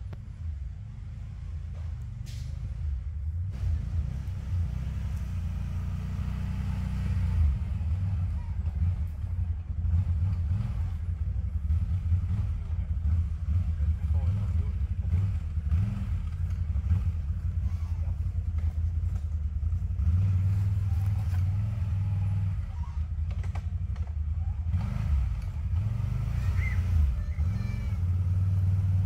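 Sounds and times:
off-road vehicle engine rumble: 0.0s - 29.0s.

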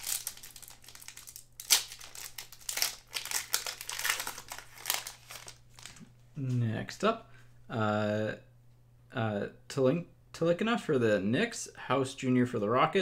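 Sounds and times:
foil wrapper tearing and crinkling: 0.0s - 6.0s.

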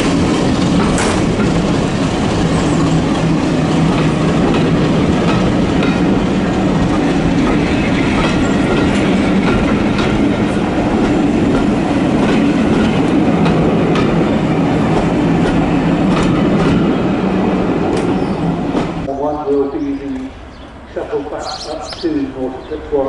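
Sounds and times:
rumble of wheels on rail: 0.0s - 23.0s
wheels clicking over rail joints: 0.1s - 14.2s.

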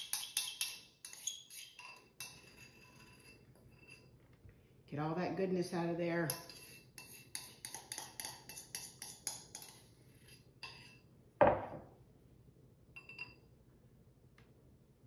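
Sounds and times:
spoon scraping a bowl: 0.0s - 4.2s, 6.2s - 11.1s
bowl knocking on wooden board: 11.4s - 11.9s.

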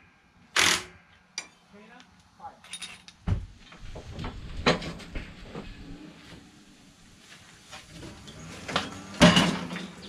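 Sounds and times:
chassis knocks and rattles: 3.2s - 5.8s.

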